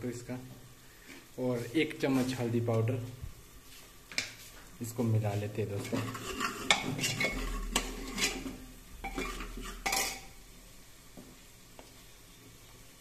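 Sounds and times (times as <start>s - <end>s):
metal spoon scraping a pot: 5.7s - 10.4s.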